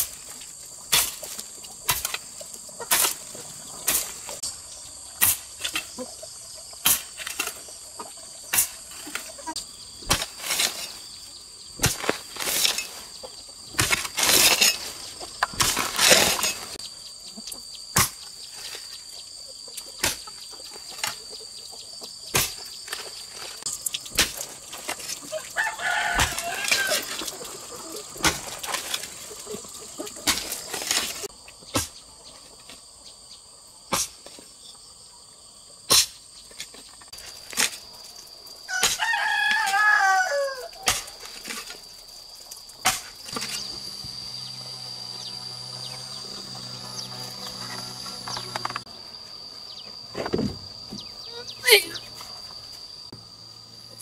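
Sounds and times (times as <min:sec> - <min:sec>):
hoe digging into soil: 0:00.0 - 0:04.5, 0:05.2 - 0:06.0, 0:06.8 - 0:07.8, 0:08.5 - 0:11.2, 0:11.8 - 0:16.9, 0:22.3 - 0:32.0, 0:42.8 - 0:48.9
high insect drone: 0:00.0 - 0:54.0
rooster crowing: 0:25.3 - 0:27.4, 0:38.7 - 0:40.9.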